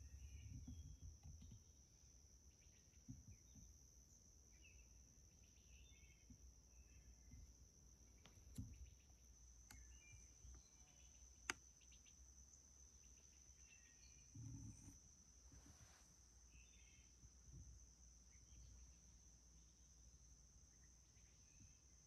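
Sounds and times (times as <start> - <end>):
crickets chirring: 0.0 - 22.0
bird chirps: 9.7 - 11.2.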